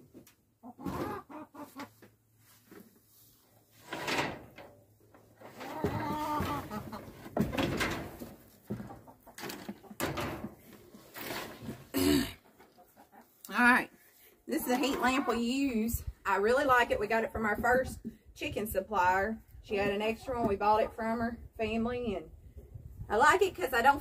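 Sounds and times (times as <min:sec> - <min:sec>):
chickens clucking: 0:00.6 - 0:02.1, 0:05.2 - 0:10.8, 0:12.4 - 0:13.5, 0:14.6 - 0:15.6.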